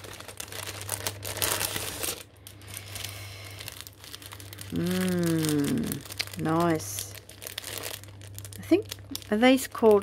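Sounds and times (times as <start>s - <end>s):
packaging crinkling: 0.0s - 10.0s.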